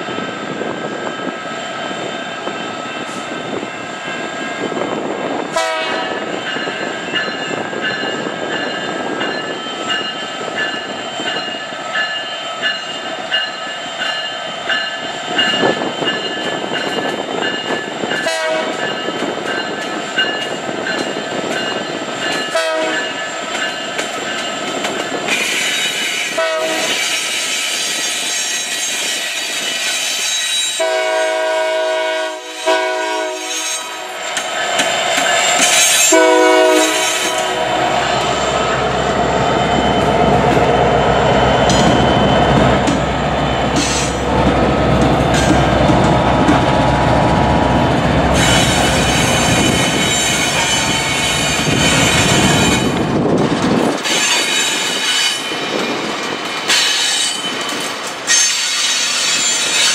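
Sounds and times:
diesel locomotive engines: 0.0s - 59.9s
locomotive horn chord: 5.6s - 6.1s, 18.2s - 18.8s, 30.8s - 34.2s, 36.1s - 38.0s.

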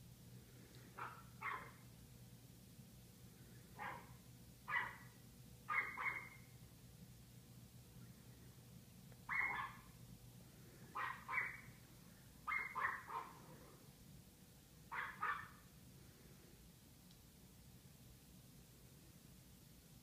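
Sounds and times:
dog barking: 1.0s - 1.8s, 3.8s - 6.5s, 9.3s - 10.0s, 10.9s - 11.7s, 12.4s - 13.5s, 14.9s - 15.6s.

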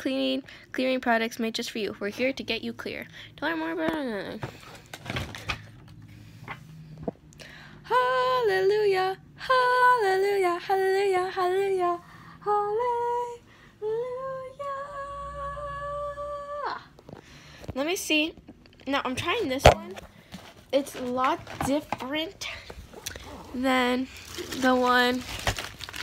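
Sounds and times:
woman singing a wordless tune: 7.8s - 17.0s.

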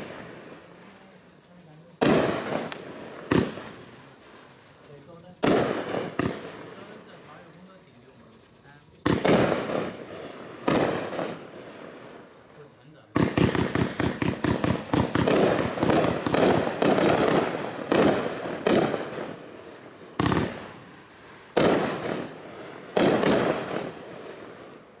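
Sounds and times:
firework cake firing: 0.0s - 25.0s.

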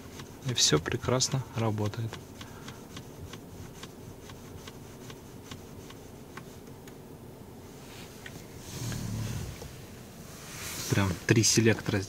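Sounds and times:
car turn signal ticking: 2.1s - 7.0s.

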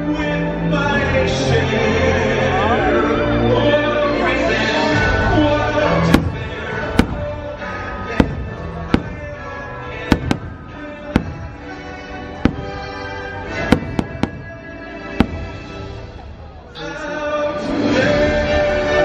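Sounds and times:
music: 0.0s - 19.0s
fireworks bursting: 5.9s - 17.0s.

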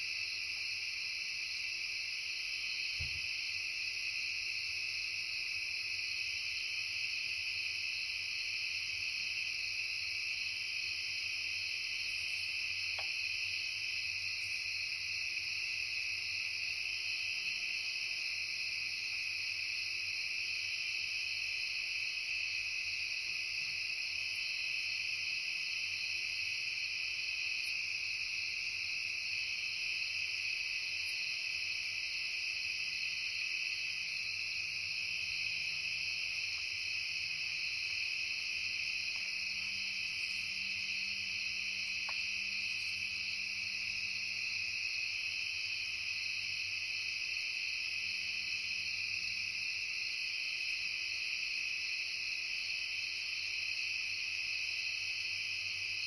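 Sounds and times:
crickets and insects chirping: 0.0s - 56.0s
faint ticks: 42.0s - 42.3s.

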